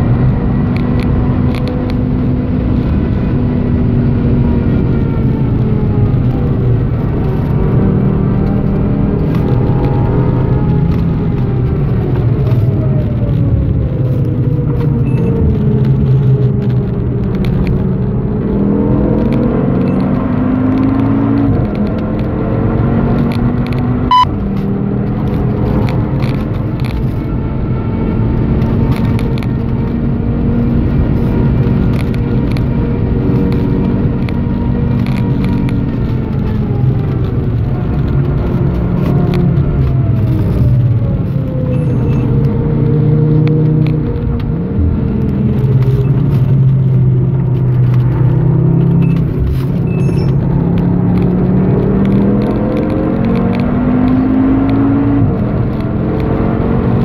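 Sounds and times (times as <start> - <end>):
car engine revving: 0.0 - 57.0
short beep: 24.1 - 24.3, 41.8 - 42.3, 49.8 - 50.4.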